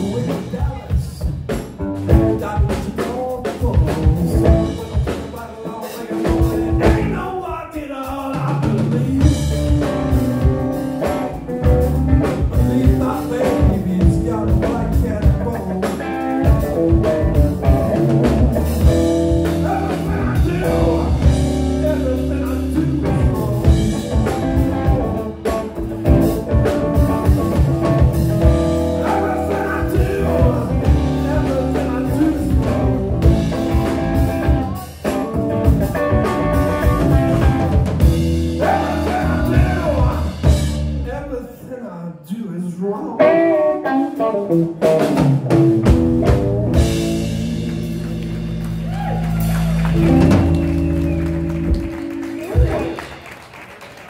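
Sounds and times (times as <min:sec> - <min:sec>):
electric guitar: 0:00.0 - 0:07.2, 0:08.5 - 0:41.0, 0:42.8 - 0:54.0
bass guitar: 0:00.0 - 0:41.4, 0:42.8 - 0:54.0
drum kit: 0:00.0 - 0:41.4, 0:43.2 - 0:54.0.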